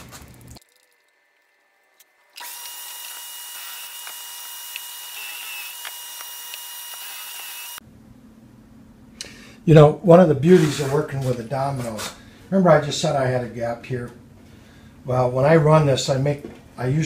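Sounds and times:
power drill whining: 2.3s - 7.8s.

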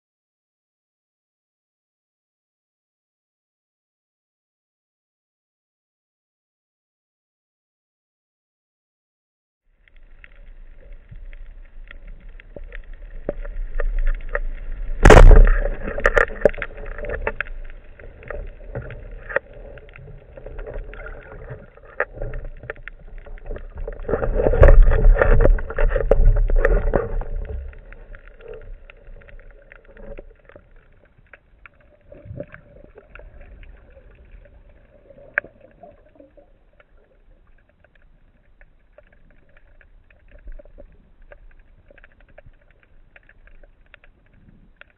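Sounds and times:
underwater crackling and clicking: 9.8s - 44.9s
rushing water and knocks: 11.9s - 30.7s
speargun firing crack: 15.0s - 15.7s.

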